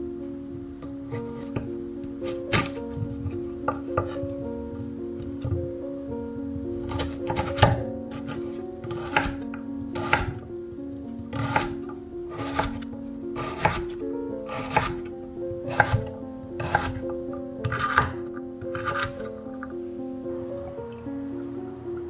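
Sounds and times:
background music of held tones: 0:00.0 - 0:22.0
knife chopping on wooden board: 0:06.9 - 0:08.3, 0:08.9 - 0:09.4, 0:10.0 - 0:10.4, 0:11.3 - 0:12.8, 0:13.4 - 0:13.9, 0:14.5 - 0:15.0, 0:15.7 - 0:16.0, 0:16.6 - 0:17.0, 0:17.6 - 0:19.2.

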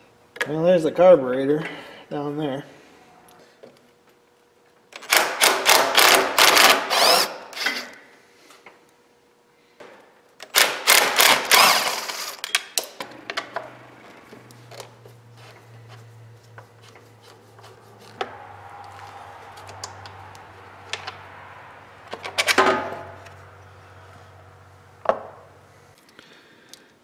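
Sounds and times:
impact driver rattling: 0:05.0 - 0:07.8, 0:10.5 - 0:12.6
steady low hum: 0:13.0 - 0:27.0.

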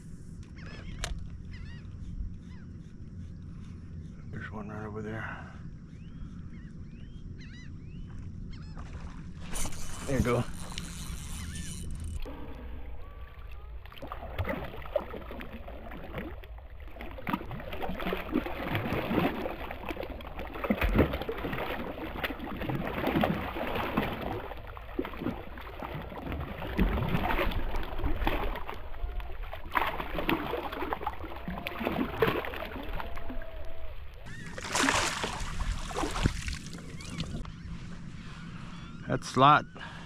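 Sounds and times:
fish thrashing and splashing water: 0:08.8 - 0:37.4.

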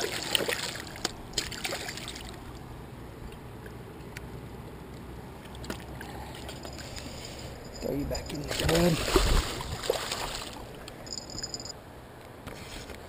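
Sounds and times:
water splashing among rocks: 0:00.0 - 0:02.4, 0:08.4 - 0:10.7
river water rushing: 0:08.5 - 0:10.8.

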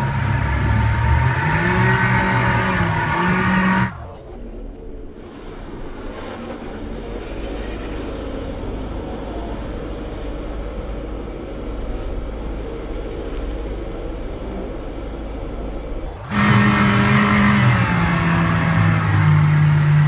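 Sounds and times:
motorboat engine running: 0:16.2 - 0:20.0.

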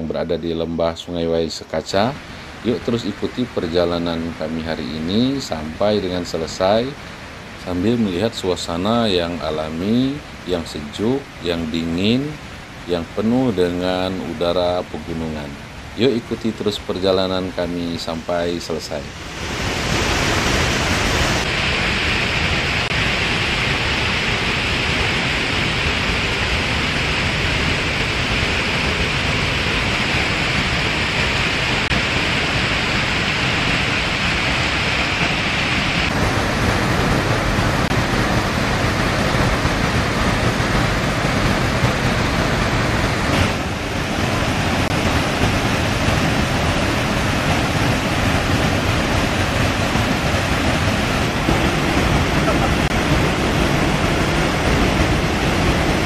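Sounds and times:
river rushing over rocks: 0:01.5 - 0:56.0.

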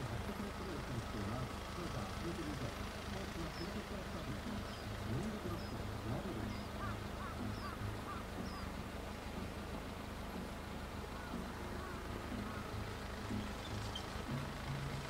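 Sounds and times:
birds chirping: 0:00.0 - 0:15.0
low engine drone: 0:00.0 - 0:15.0.

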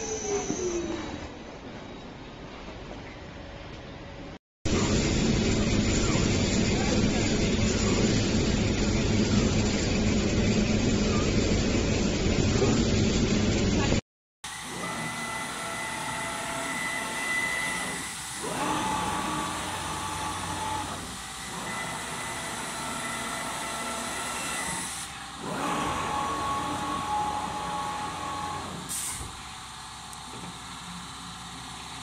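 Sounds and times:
cutting machine motors whining: 0:14.5 - 0:32.0.

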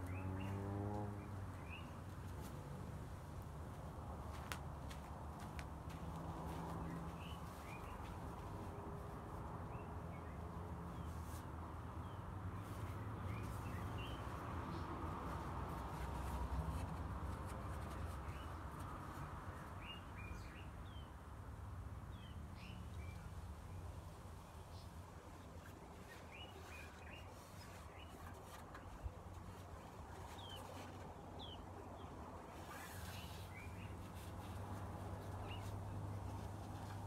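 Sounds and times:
outdoor background noise: 0:00.0 - 0:37.0
small birds chirping: 0:04.3 - 0:08.8, 0:24.5 - 0:37.0.

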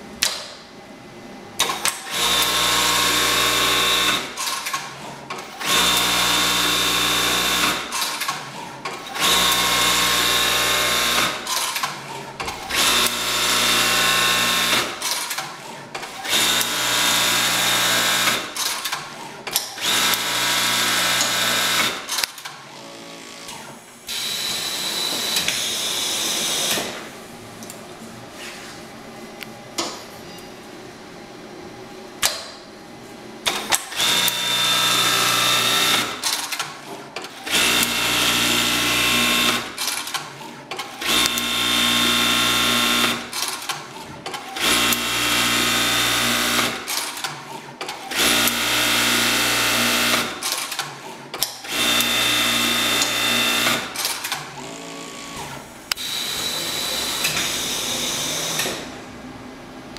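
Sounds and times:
sewing machine buzzing: 0:01.7 - 0:27.1, 0:33.5 - 0:47.3, 0:47.9 - 0:51.0, 0:51.6 - 0:59.1
sewing machine light whir: 0:33.4 - 0:59.0.

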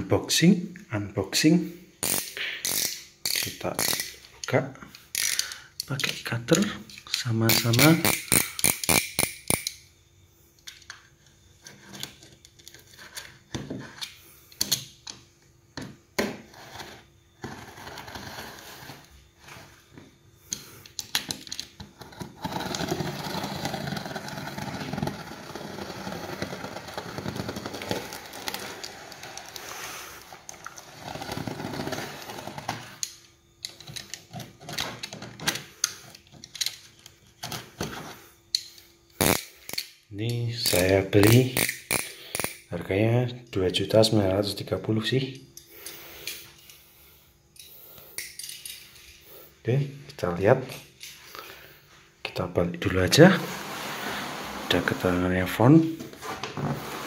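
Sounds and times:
utility knife cutting tape: 0:39.2 - 0:39.5.

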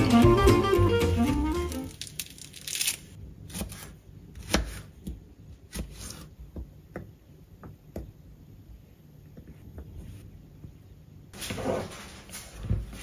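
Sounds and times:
background music: 0:00.0 - 0:02.0.

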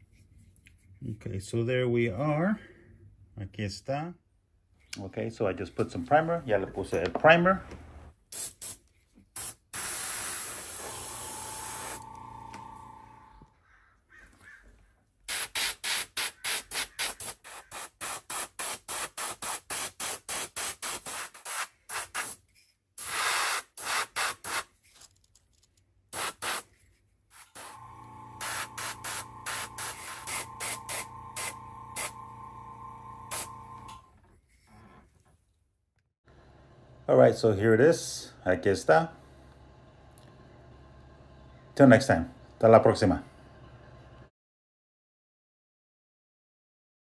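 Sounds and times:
airbrush spraying hiss: 0:09.4 - 0:12.0, 0:15.3 - 0:22.4, 0:23.0 - 0:24.6, 0:26.2 - 0:26.6, 0:27.3 - 0:27.8, 0:28.4 - 0:32.2, 0:33.3 - 0:33.5
small motor humming: 0:10.4 - 0:13.5, 0:27.5 - 0:34.1, 0:39.2 - 0:44.3.

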